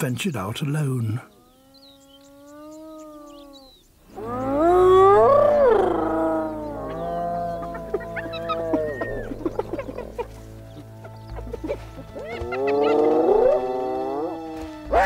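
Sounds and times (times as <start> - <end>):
faint bird chirps: 0.9 - 10.0
hyenas whooping: 1.5 - 10.3, 11.6 - 15.0
low music drone: 4.3 - 15.0.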